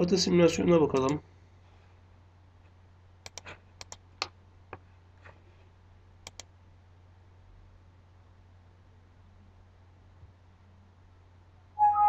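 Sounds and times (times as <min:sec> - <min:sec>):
faint low hum: 0:00.0 - 0:12.0
computer mouse clicking: 0:03.2 - 0:04.4, 0:06.2 - 0:06.5.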